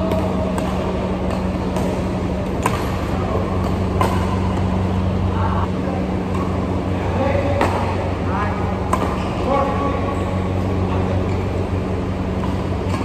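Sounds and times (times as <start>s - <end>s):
racket hitting shuttlecock: 0.0s - 5.1s, 7.4s - 8.1s, 8.8s - 9.9s, 10.6s - 13.0s
air cooler hum: 0.0s - 13.0s.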